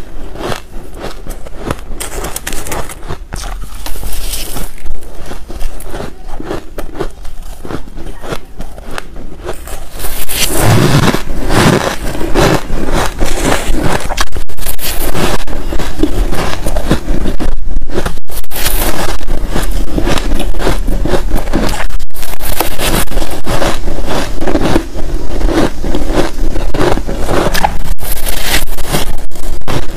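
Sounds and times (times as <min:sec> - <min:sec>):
crunching and chewing ice: 0:00.0 - 0:29.9.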